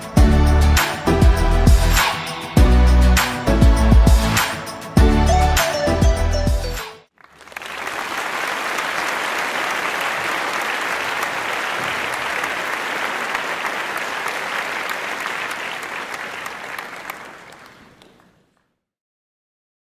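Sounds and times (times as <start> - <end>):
crowd applauding: 7.1 - 18.6.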